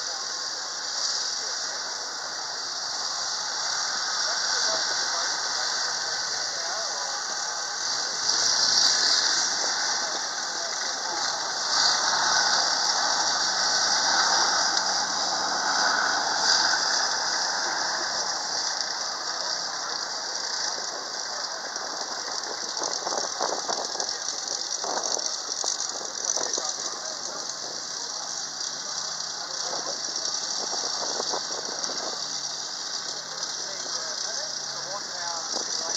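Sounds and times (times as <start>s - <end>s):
tracked vehicle squealing hiss: 0.0s - 22.2s
faint low engine hum: 0.0s - 35.9s.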